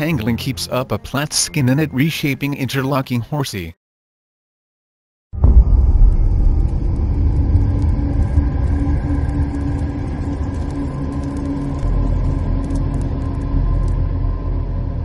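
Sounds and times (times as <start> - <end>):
deep steady rumble: 5.4 - 15.0
small crackles: 6.6 - 14.8.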